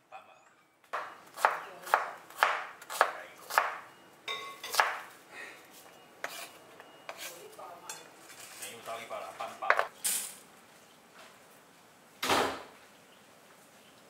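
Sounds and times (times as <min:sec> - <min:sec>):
knife chopping on wooden board: 0:00.9 - 0:03.8, 0:04.7 - 0:05.0.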